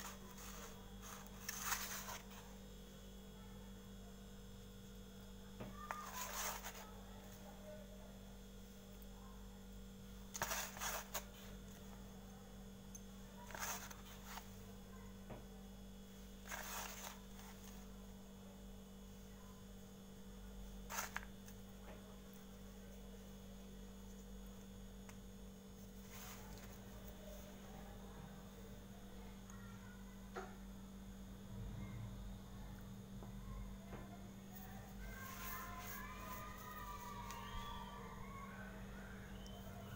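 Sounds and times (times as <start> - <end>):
electrical hum: 0.0 - 39.9.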